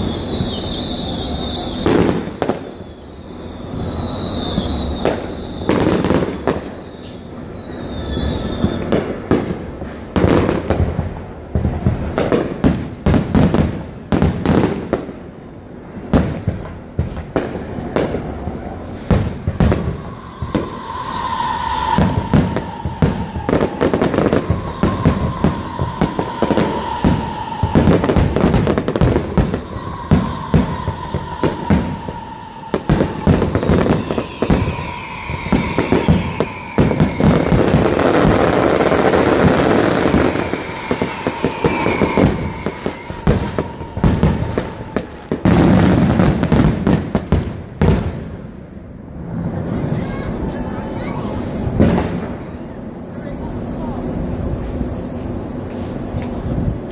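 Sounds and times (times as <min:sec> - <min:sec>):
falling firework whistles: 0:00.0 - 0:56.9
fireworks banging and crackling: 0:00.0 - 0:56.9
long high tone dropping in pitch: 0:18.2 - 0:46.2.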